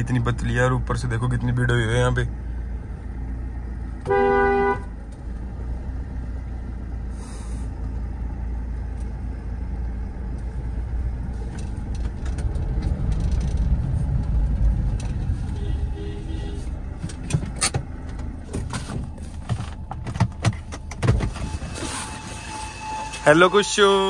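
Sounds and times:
car driving low rumble: 0:00.0 - 0:24.0
car horn toot: 0:04.0 - 0:05.0, 0:15.4 - 0:16.8, 0:21.3 - 0:24.0.

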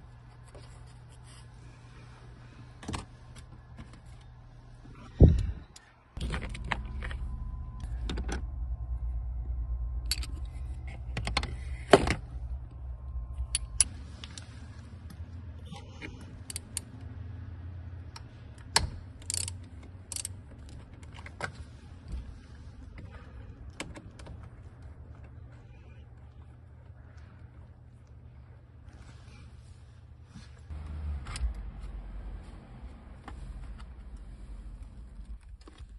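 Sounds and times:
low hum: 0:00.0 - 0:35.9
metallic socket clicks: 0:13.4 - 0:13.9.

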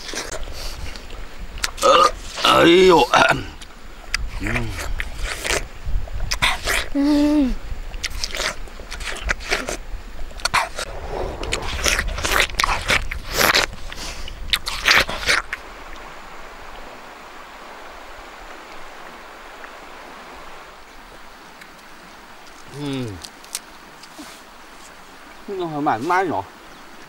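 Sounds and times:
flowing river water: 0:00.0 - 0:27.0
person eating juicy watermelon: 0:04.1 - 0:05.7, 0:06.3 - 0:07.3, 0:07.9 - 0:09.8, 0:12.3 - 0:15.6.

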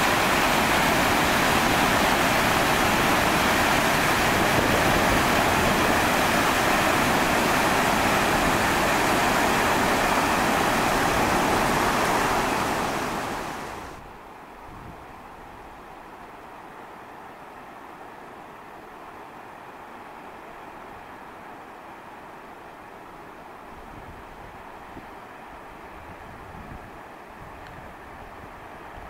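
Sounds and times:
waterfall rushing: 0:00.0 - 0:14.0.

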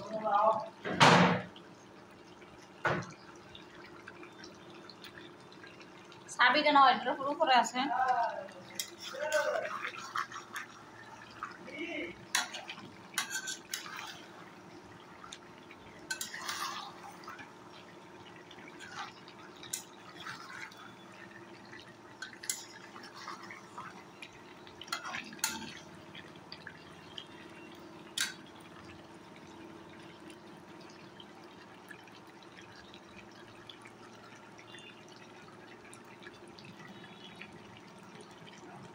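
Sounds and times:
metal spatula scraping a pan: 0:12.4 - 0:14.3, 0:16.1 - 0:17.3.

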